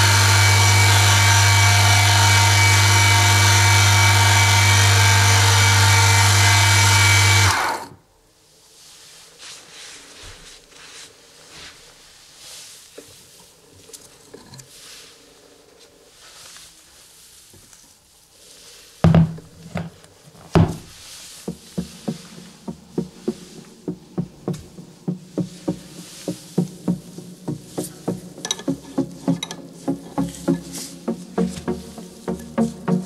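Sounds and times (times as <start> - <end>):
handling rustles: 8.8 - 23.8.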